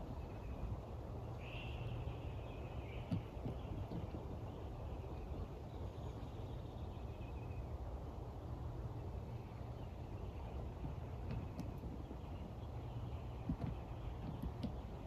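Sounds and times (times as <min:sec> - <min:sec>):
distant bird chirps: 0:00.0 - 0:07.8
steady low rumble: 0:00.0 - 0:15.0.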